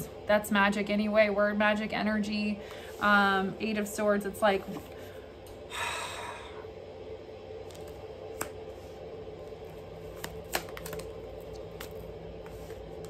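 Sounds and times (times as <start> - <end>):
cards sliding rustle: 7.6 - 13.0.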